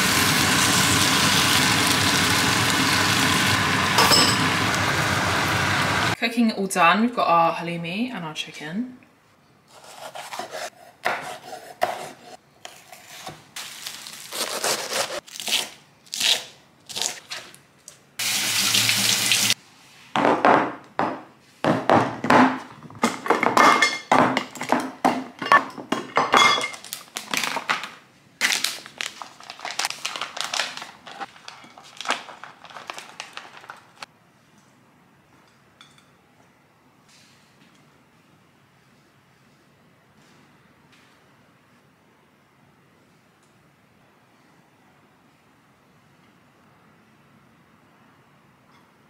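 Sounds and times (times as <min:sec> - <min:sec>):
glass boxes clinking on stone: 0:04.0 - 0:04.5
plastic packet rustling: 0:13.6 - 0:15.2, 0:26.7 - 0:34.1.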